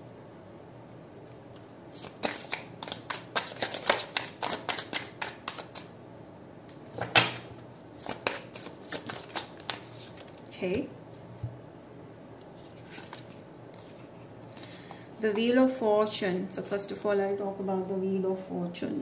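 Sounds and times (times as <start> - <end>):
cards being shuffled: 1.5 - 5.9, 8.0 - 10.5, 12.6 - 15.0.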